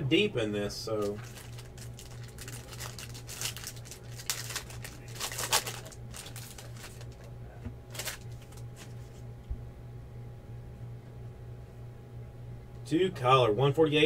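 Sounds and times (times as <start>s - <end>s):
steady low hum: 0.0s - 14.0s
foil wrapper crinkling and tearing: 1.0s - 7.3s, 7.9s - 8.9s.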